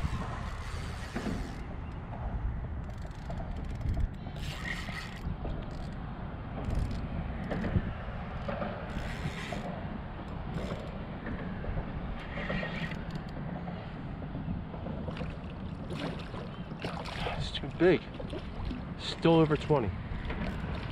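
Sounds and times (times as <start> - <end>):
fishing reel cranking: 0.0 - 2.0, 2.8 - 6.0, 6.6 - 7.7, 8.9 - 9.7, 10.5 - 11.0, 12.4 - 13.3.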